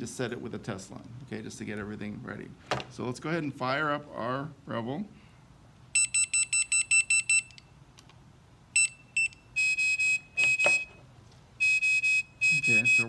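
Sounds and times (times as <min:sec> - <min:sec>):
steady alarm tones: 0:08.8 - 0:11.0, 0:11.6 - 0:13.0
high electronic beeps: 0:11.6 - 0:13.0.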